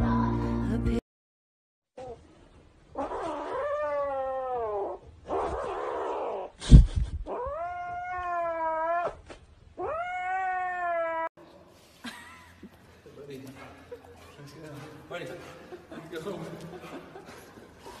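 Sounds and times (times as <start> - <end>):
kitten yowling: 3.0 - 6.5, 7.3 - 9.2, 9.8 - 11.3.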